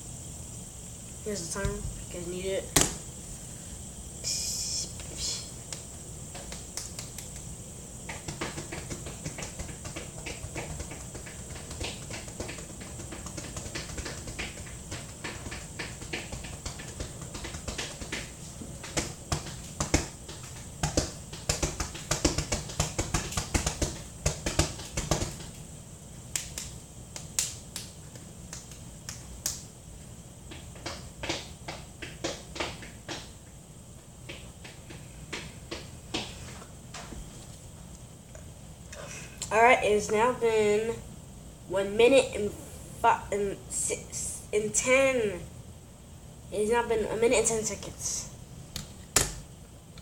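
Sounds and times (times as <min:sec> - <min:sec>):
finger clicks: 0:06.5 - 0:07.5.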